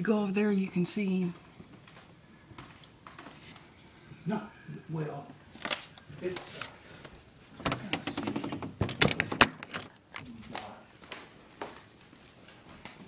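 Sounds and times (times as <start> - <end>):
footsteps: 1.3 - 3.7, 9.3 - 13.0.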